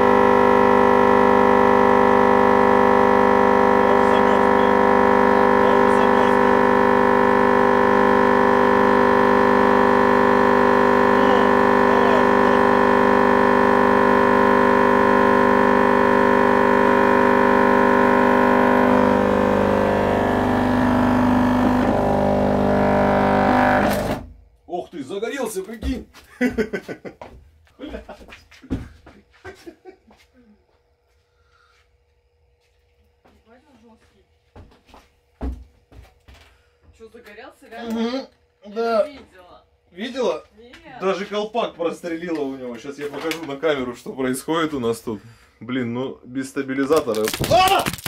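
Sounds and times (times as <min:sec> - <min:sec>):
subwoofer buzzing drone: 0:00.0 - 0:24.7.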